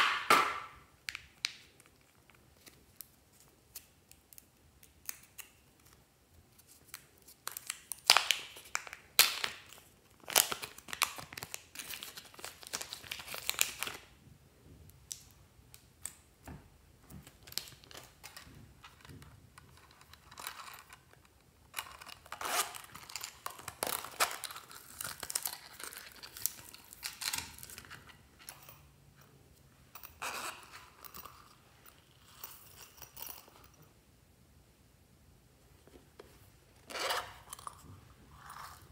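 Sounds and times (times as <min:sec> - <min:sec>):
plastic packets crinkling: 0:07.5 - 0:14.1, 0:21.7 - 0:28.1.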